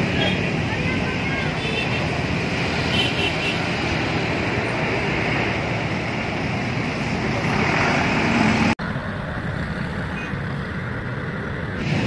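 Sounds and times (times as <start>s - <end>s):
busy road traffic: 0.0s - 12.0s
bus engine pulling away: 3.6s - 12.0s.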